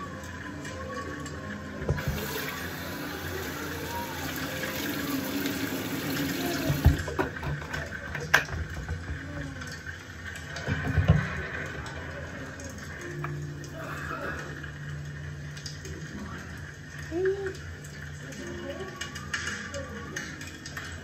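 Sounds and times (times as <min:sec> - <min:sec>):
tap running into basin: 0:01.8 - 0:09.3.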